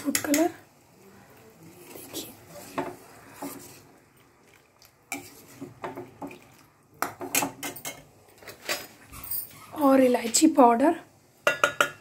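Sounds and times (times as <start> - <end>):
steel spoon clinking against a pan: 0.0 - 0.6, 11.4 - 12.0.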